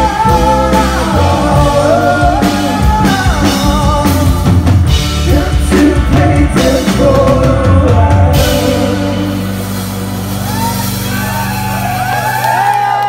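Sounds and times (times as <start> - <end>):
man singing: 0.0 - 9.7
drum kit with cymbals: 0.0 - 12.8.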